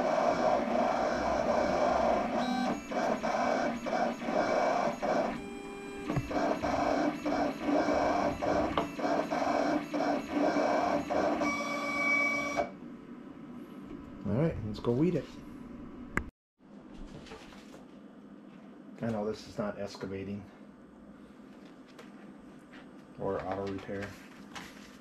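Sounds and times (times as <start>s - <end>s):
vinyl cutter stepper motors whirring: 0.0s - 12.7s.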